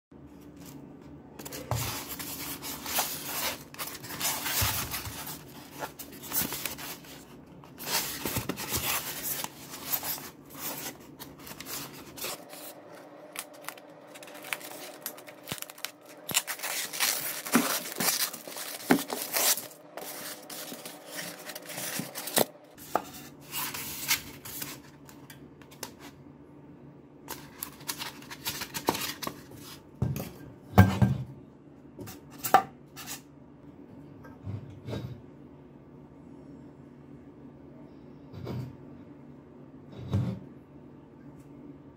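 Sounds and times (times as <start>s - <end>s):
styrofoam rubbing and scraping: 1.6s - 12.8s, 13.6s - 24.7s
packing tape peeling and tearing: 13.3s - 22.5s.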